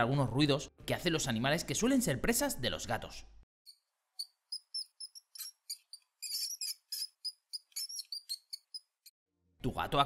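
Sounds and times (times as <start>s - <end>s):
mouse squeaking: 3.7s - 9.1s.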